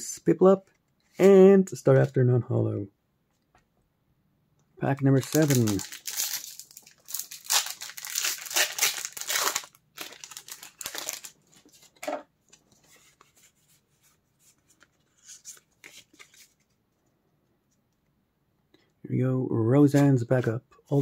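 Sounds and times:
cards rustling: 0:05.0 - 0:16.8
foil wrapper tearing and crinkling: 0:05.2 - 0:11.4.

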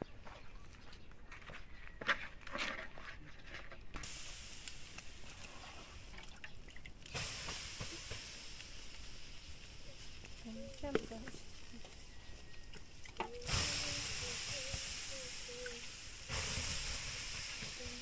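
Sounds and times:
hot griddle hissing: 0:04.0 - 0:06.2, 0:07.0 - 0:18.0
liquid sizzling on griddle: 0:04.0 - 0:18.0.

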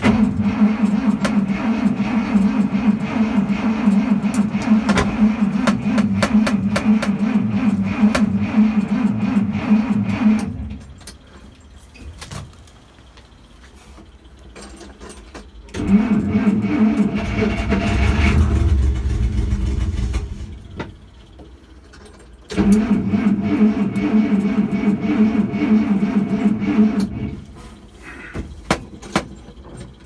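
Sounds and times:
engine starter cranking: 0:00.0 - 0:11.3, 0:14.9 - 0:21.4, 0:22.2 - 0:27.6.

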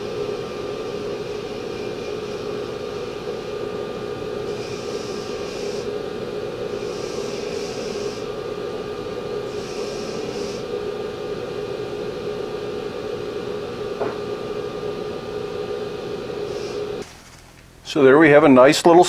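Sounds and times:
belt grinder humming: 0:00.0 - 0:17.2
hiss of grinding steel: 0:04.5 - 0:05.9, 0:06.7 - 0:08.3, 0:09.4 - 0:10.7, 0:16.4 - 0:17.1.

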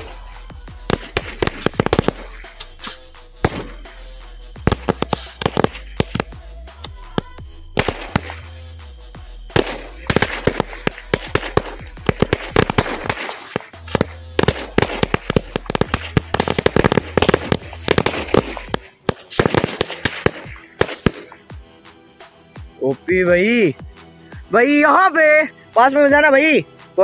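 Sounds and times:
firecrackers going off: 0:00.0 - 0:06.4, 0:07.1 - 0:08.7, 0:09.5 - 0:21.5.

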